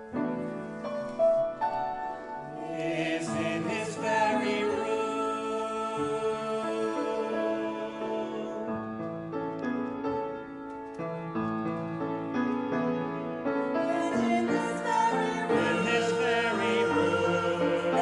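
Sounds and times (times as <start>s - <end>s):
piano accompaniment: 0.0s - 18.0s
vocal quartet singing in harmony: 2.3s - 9.3s, 13.7s - 18.0s.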